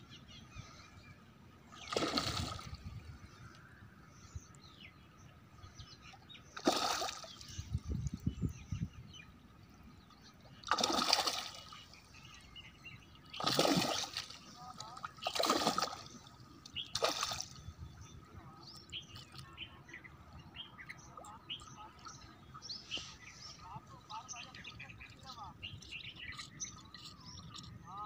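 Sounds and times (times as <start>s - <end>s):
fish splashing in water: 1.7s - 3.0s, 6.6s - 7.5s, 10.6s - 12.0s, 13.2s - 17.6s.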